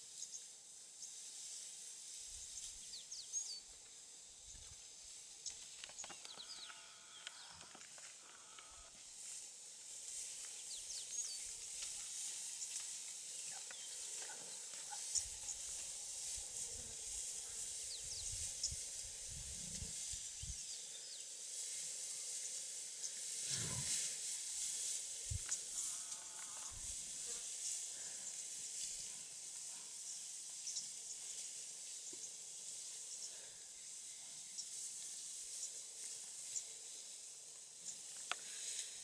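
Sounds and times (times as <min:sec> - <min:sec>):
animals rustling through dry grass: 0:00.0 - 0:39.0
steady high hiss: 0:00.0 - 0:39.0.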